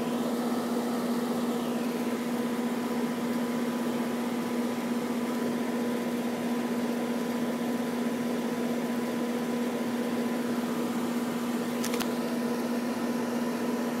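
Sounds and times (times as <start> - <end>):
condensing unit hum: 0.0 - 14.0
fan rushing: 0.0 - 14.0.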